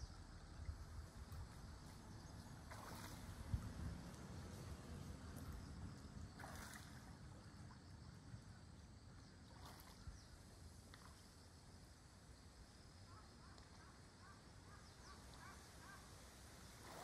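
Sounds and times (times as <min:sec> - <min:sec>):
low wind rumble: 0:00.0 - 0:09.1
swan splashing water: 0:02.5 - 0:05.6, 0:06.3 - 0:07.8, 0:09.5 - 0:10.1, 0:16.5 - 0:17.0.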